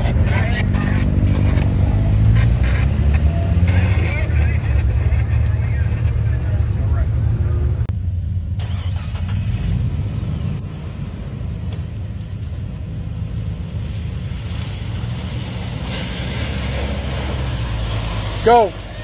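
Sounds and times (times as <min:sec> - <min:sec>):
muddy water splashing: 0:00.0 - 0:07.9, 0:13.1 - 0:19.0
car engine running at low speed: 0:00.0 - 0:15.4.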